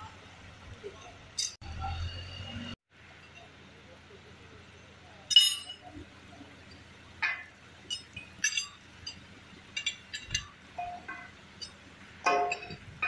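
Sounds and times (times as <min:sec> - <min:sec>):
metal clank: 0:05.3 - 0:05.9, 0:07.2 - 0:13.0
steel chains clinking and rattling: 0:05.3 - 0:05.9, 0:07.2 - 0:13.0.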